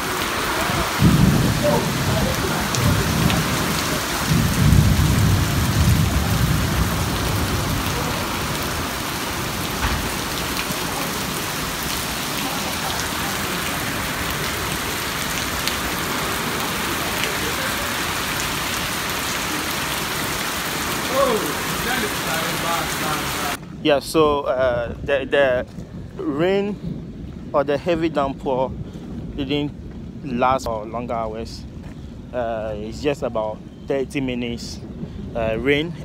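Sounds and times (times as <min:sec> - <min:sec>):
heavy rain hissing: 0:00.0 - 0:24.4
thunder rumbling: 0:00.0 - 0:36.0.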